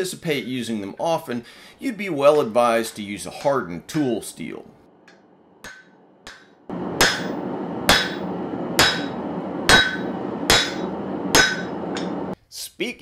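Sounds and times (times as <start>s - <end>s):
hammer blows ringing on steel: 5.6s - 12.2s.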